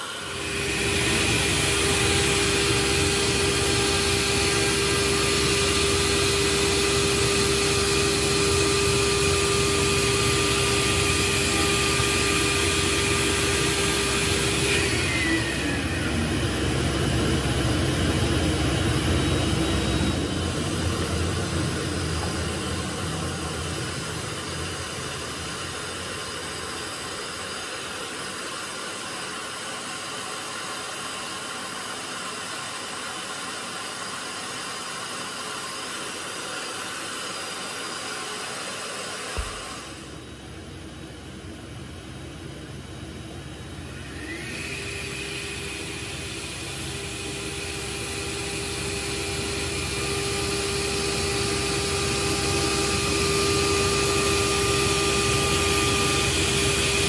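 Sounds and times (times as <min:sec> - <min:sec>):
router spindle high whine: 0:00.0 - 0:57.0.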